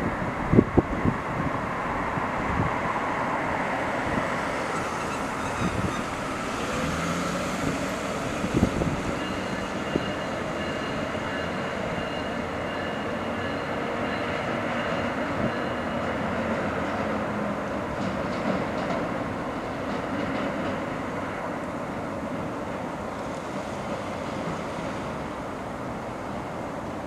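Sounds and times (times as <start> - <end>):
diesel train engine and wheels: 0.0 - 27.0
train wheels clicking on rails: 3.8 - 21.8.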